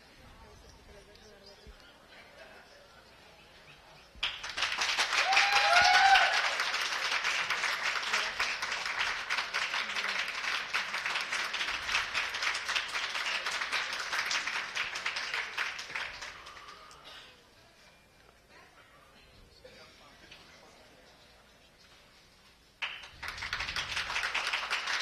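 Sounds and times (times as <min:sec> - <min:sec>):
crowd applauding: 0:04.2 - 0:17.0, 0:22.8 - 0:25.0
whooping cheer: 0:05.0 - 0:06.7.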